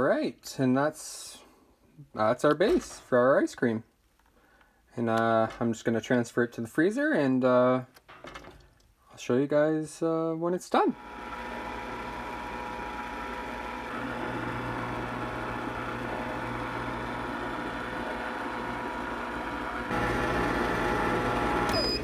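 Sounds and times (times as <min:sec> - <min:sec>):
ice cream maker motor humming: 0:11.0 - 0:22.0.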